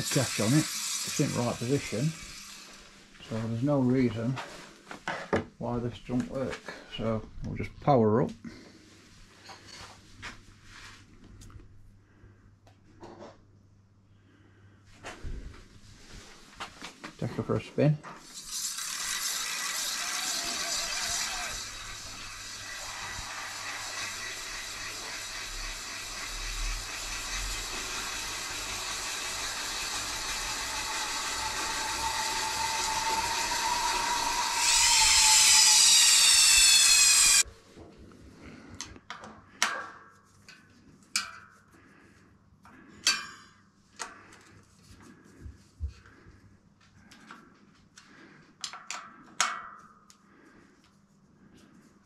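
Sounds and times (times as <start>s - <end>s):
electric bike motor whining: 18.5s - 37.4s.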